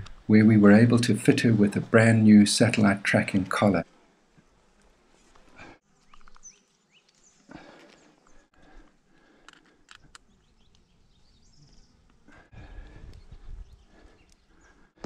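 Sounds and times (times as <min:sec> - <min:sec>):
faint rustles: 0:03.8 - 0:11.0
sharp clicks: 0:09.4 - 0:10.8.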